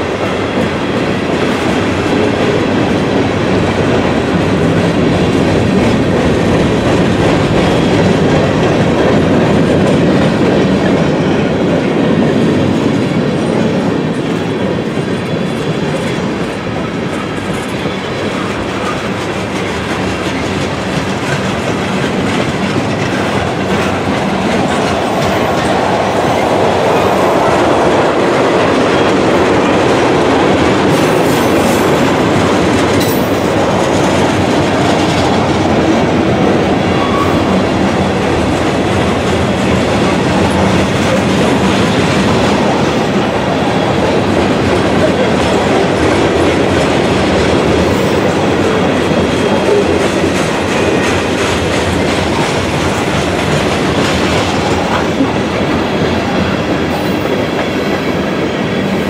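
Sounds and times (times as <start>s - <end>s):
steel wheels rumbling on rails: 0.0s - 59.0s
wheels clacking over rail joints: 0.0s - 59.0s.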